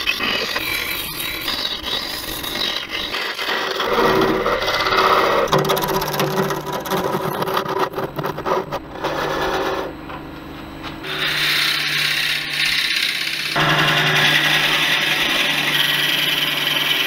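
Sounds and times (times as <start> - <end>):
turning tool cutting wood: 0.0 - 9.9, 11.0 - 17.0
wood lathe humming: 0.0 - 10.0, 11.0 - 17.0
drill bit boring into wood: 11.0 - 17.0.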